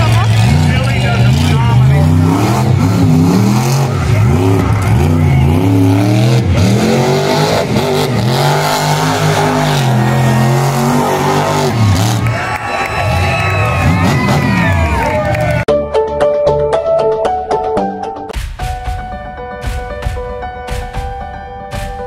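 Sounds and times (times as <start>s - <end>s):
monster truck engine revving: 0.0s - 15.7s.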